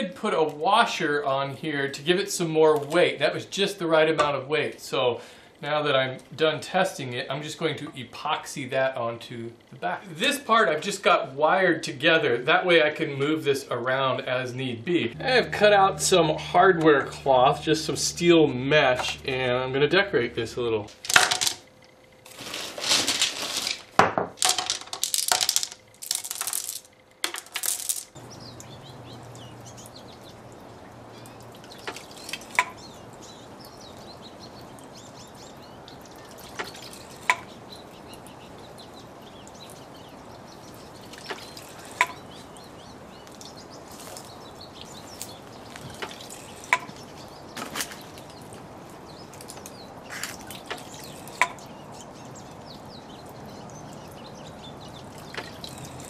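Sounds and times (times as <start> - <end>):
bamboo clacking against stone: 20.9 - 21.6, 22.4 - 28.2, 31.8 - 32.8, 36.5 - 37.6, 41.2 - 42.2, 45.2 - 47.0, 49.4 - 51.6
pebbles clattering into wooden basin: 20.9 - 21.6, 22.3 - 28.2
water trickling: 28.1 - 56.0.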